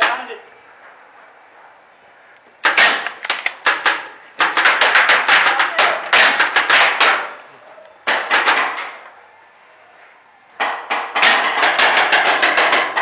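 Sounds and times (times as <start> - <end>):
rapid paintball fire pops: 2.6 - 8.9, 10.6 - 13.0.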